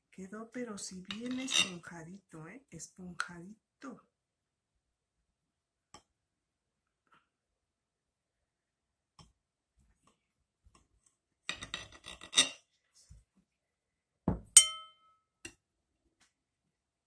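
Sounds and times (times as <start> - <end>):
knife clinking on ceramic plate: 1.1 - 1.8, 14.5 - 15.1
knife scraping on plate: 1.1 - 1.8, 11.5 - 12.6.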